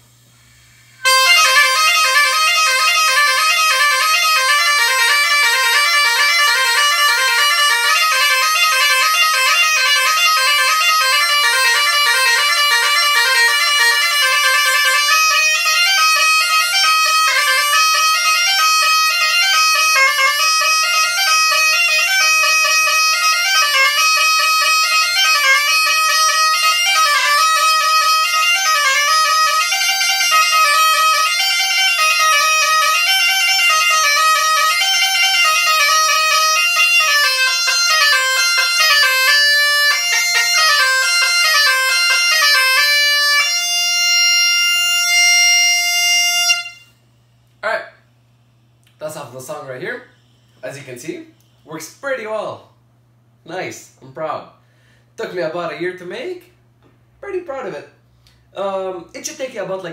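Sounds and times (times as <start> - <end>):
bagpipe chanter slow melody: 0.6 - 47.2.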